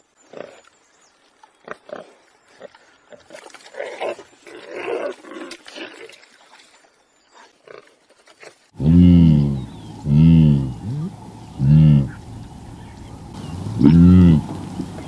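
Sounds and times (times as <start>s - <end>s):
warthog grunting: 8.8s - 12.4s, 13.3s - 15.0s
low pitched animal call: 8.8s - 15.0s.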